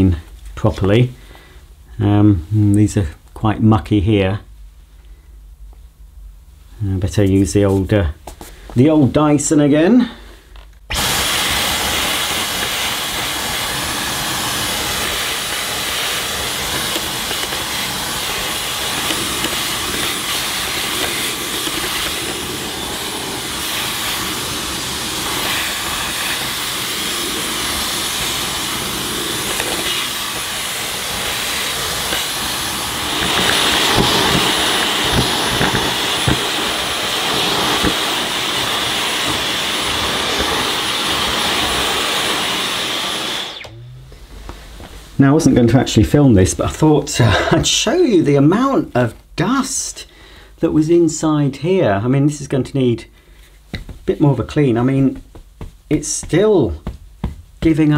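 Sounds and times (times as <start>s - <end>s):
cordless vacuum running: 10.9s - 44.9s.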